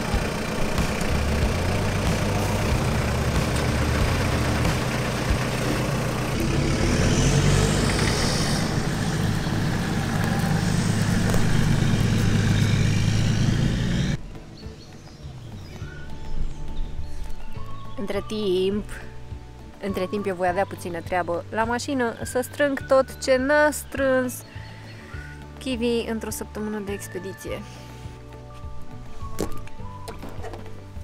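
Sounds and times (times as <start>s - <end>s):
off-road truck engines running: 0.0s - 31.0s.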